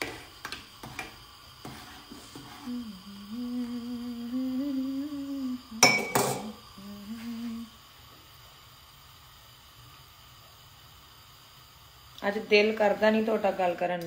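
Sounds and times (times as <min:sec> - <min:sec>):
woman humming: 0:02.6 - 0:07.8.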